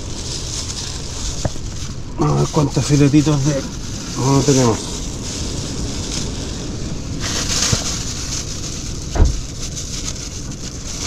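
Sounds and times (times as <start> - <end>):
plastic bags rustling and crinkling: 0.0 - 11.0
short low thump: 9.2 - 9.5.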